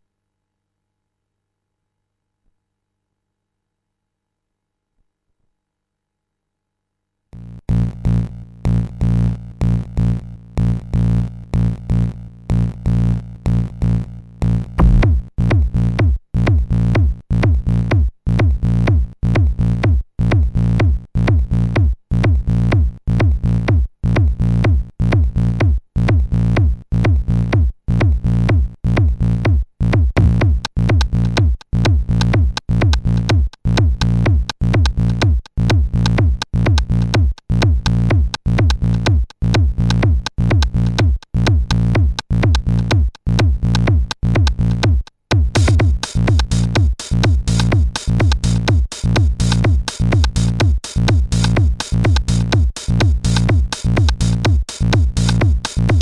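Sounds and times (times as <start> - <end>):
electronic techno music: 14.8 - 15.2, 45.4 - 56.0.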